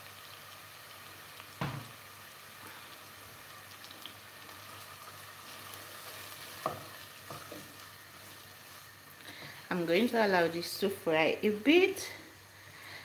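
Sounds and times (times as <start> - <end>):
onion sizzling in oil: 0.0 - 13.0
spatula scraping a pan: 5.9 - 8.5.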